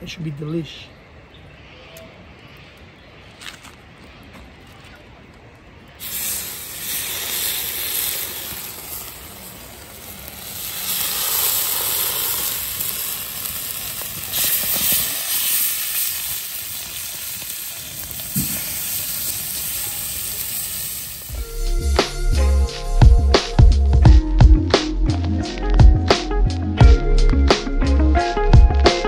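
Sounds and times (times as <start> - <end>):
chicken sizzling on hotplate: 6.0 - 21.3.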